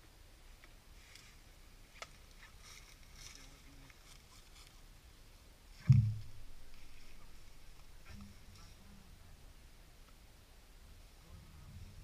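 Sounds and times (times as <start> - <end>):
faint rustling: 0.6 - 4.9, 5.7 - 9.3
loud low thump: 5.8 - 6.7.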